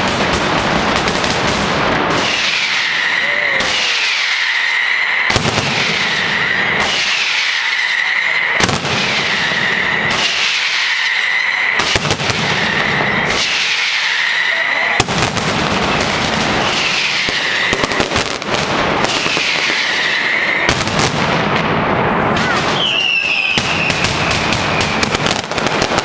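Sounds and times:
firecracker bangs: 0:00.0 - 0:26.0
whistling tone: 0:02.2 - 0:15.0, 0:16.1 - 0:18.2, 0:19.1 - 0:20.7, 0:22.4 - 0:25.2.

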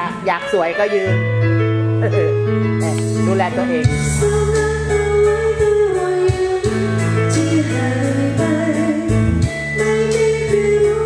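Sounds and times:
bass: 0:00.0 - 0:11.0
person singing: 0:03.6 - 0:11.0.

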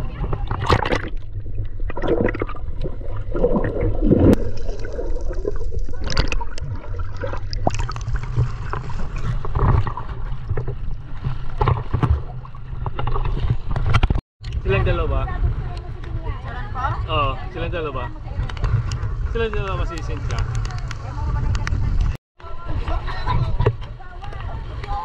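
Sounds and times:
water splashes: 0:00.0 - 0:16.8
water sloshing around a boat: 0:00.0 - 0:19.1.

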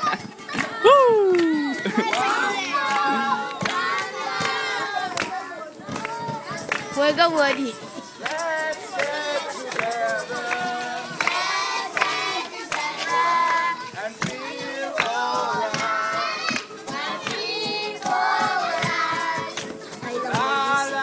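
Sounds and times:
children and man singing: 0:00.0 - 0:07.0, 0:07.8 - 0:21.0
strummed acoustic guitar: 0:01.6 - 0:21.0.

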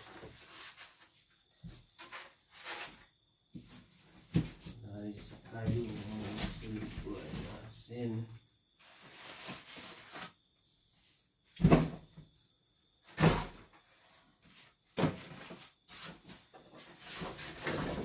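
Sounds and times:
cardboard rustling and scraping: 0:00.0 - 0:07.7, 0:08.8 - 0:10.4, 0:13.1 - 0:18.0.

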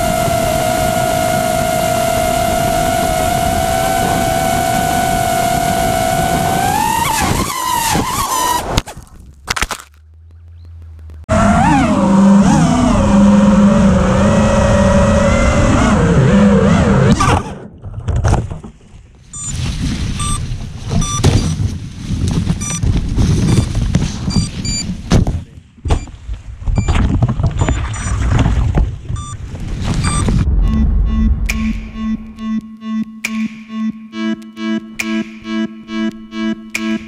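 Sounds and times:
drone motors whining: 0:00.0 - 0:08.7, 0:10.1 - 0:17.3, 0:29.2 - 0:33.1.

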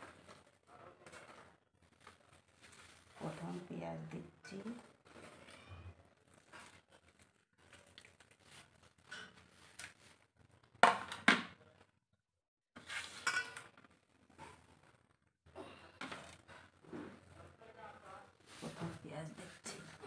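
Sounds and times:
hands squishing chicken and onion: 0:06.2 - 0:10.3.

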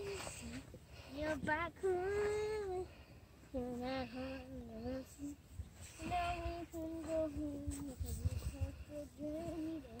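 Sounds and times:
low uneven rumble: 0:00.0 - 0:10.0
person humming a wordless tune: 0:03.5 - 0:10.0.

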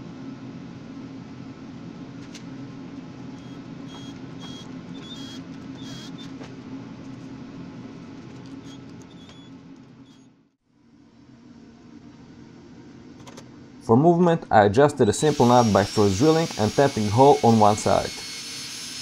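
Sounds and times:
steady low hum: 0:00.0 - 0:18.2.

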